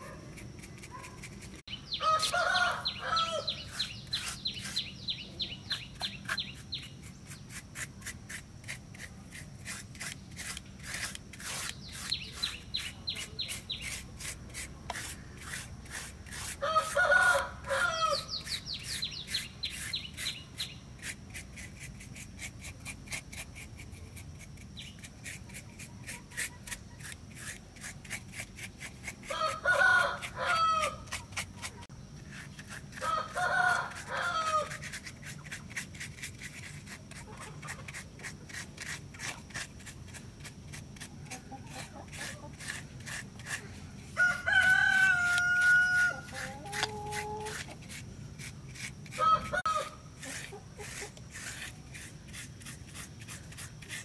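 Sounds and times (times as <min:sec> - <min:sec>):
paintbrush scratching on concrete: 0:00.0 - 0:54.0
rooster crowing: 0:02.0 - 0:03.6, 0:16.6 - 0:18.3, 0:29.3 - 0:31.1, 0:33.0 - 0:34.8, 0:44.2 - 0:46.4, 0:49.1 - 0:50.0.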